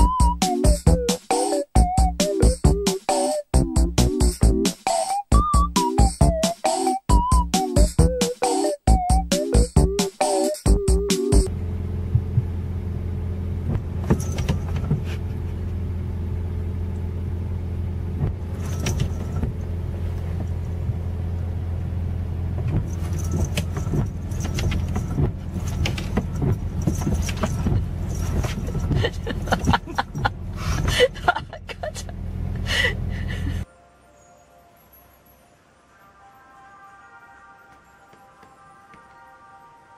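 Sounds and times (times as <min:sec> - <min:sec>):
car engine idling: 0:11.3 - 0:33.6
windshield wipers sweeping: 0:11.9 - 0:32.6.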